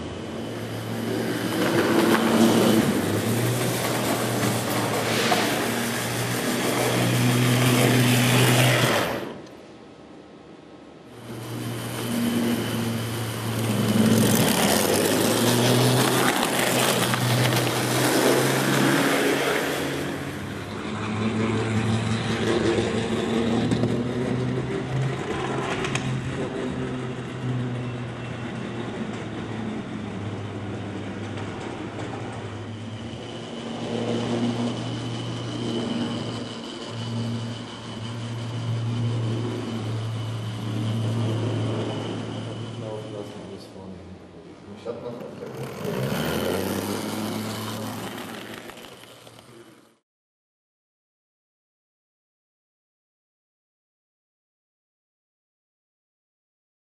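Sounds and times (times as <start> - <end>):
model trams running: 0.0 - 50.0
electric motors whirring: 0.2 - 9.6, 11.2 - 29.2, 30.8 - 43.4, 45.1 - 49.9.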